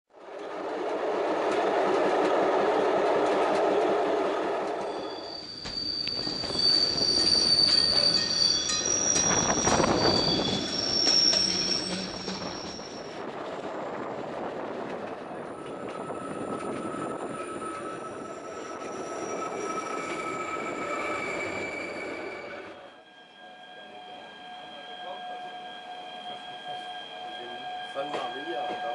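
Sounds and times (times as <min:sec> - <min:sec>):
train rumbling on rails: 0:00.1 - 0:28.9
train knocks: 0:01.4 - 0:13.1
high-pitched wheel squeal: 0:04.7 - 0:13.2, 0:15.4 - 0:28.9.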